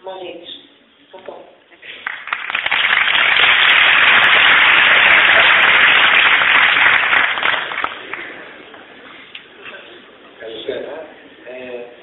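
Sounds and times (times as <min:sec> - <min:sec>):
audience applauding: 0:01.9 - 0:08.5.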